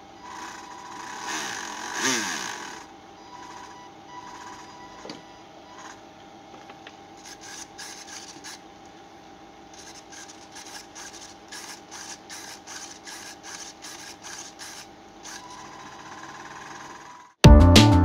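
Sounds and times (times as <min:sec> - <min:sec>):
quick rubbing strokes: 0:07.2 - 0:08.6
loud music: 0:17.4 - 0:18.0.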